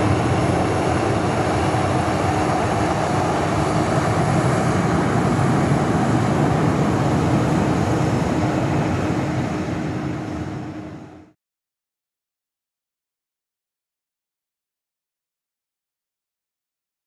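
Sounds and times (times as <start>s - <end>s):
constant hum: 0.0s - 11.4s
jet engine roar: 0.0s - 11.4s.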